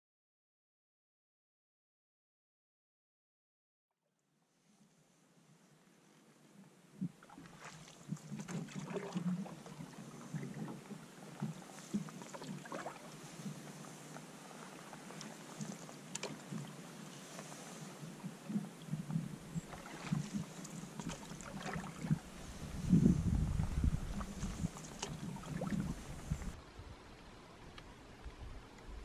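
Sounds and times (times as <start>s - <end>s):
paddle splashes and drips: 7.1s - 22.9s, 24.0s - 26.6s
paddle knocking canoe: 7.1s - 26.6s.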